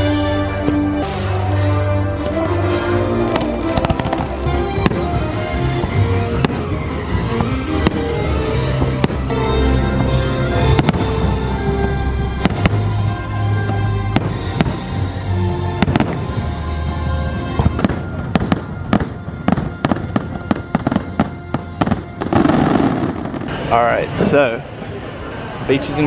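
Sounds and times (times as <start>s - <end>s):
music soundtrack: 0.0s - 26.0s
fireworks bursting bangs: 3.2s - 11.5s, 12.3s - 13.0s, 13.6s - 15.1s, 15.7s - 16.5s, 17.5s - 24.4s.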